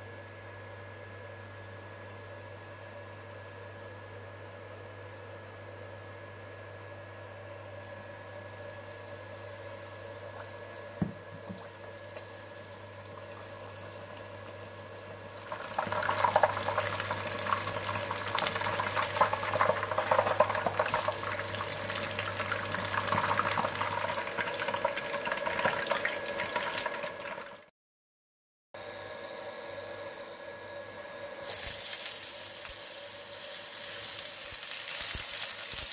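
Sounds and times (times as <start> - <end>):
chicken frying in hot oil: 8.3 - 27.7, 31.4 - 35.9.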